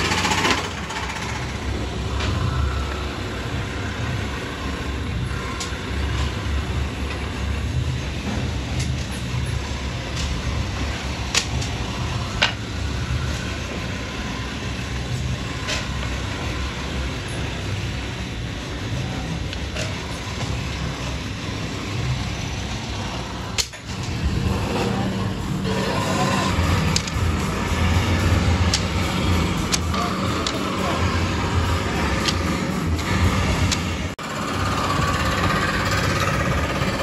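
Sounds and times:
electric motor spindle running: 19.9 - 37.0.

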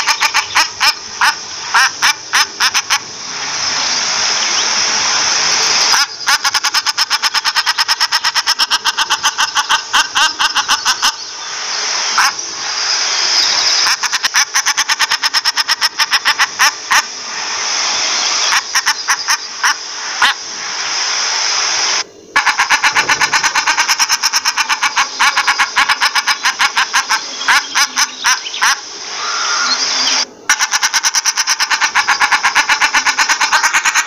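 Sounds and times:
duck cackling calls: 0.0 - 3.1, 5.9 - 11.3, 12.2 - 12.4, 13.8 - 17.1, 18.5 - 20.4, 22.4 - 29.8, 30.5 - 34.0
steady hiss: 0.0 - 34.0.

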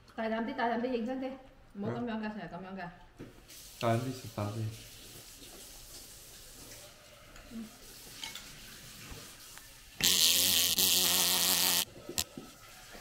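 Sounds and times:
loud electric buzz: 10.0 - 11.9.

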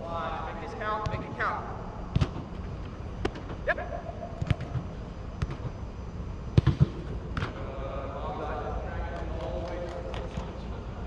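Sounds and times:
soccer ball thuds: 1.0 - 1.3, 2.1 - 2.5, 4.4 - 5.8, 6.5 - 7.6.

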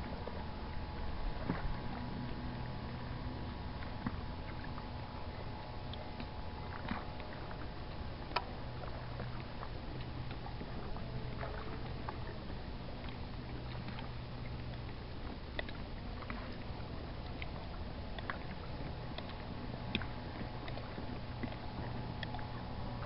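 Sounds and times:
steady low hum: 0.0 - 23.0
water lapping against kayak hull: 0.0 - 23.0
faint ticks: 5.8 - 8.5, 11.2 - 23.0.

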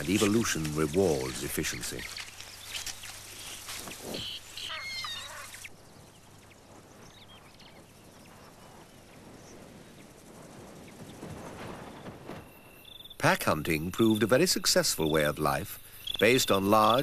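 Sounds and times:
wild dogs twittering chirps: 1.9 - 8.6
tearing noises: 2.1 - 4.4.

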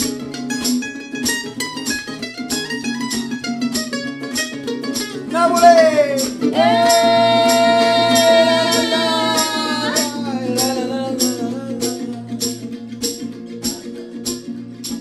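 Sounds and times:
acoustic guitar strummed: 0.0 - 15.0
mandolin strummed: 0.0 - 15.0
man and woman singing: 5.3 - 12.9.

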